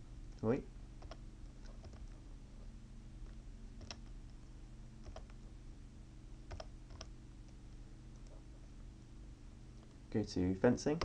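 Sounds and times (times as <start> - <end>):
low hum: 0.0 - 11.0
computer mouse and key clicks: 1.0 - 2.2, 3.8 - 4.4, 5.0 - 5.4, 6.5 - 8.4.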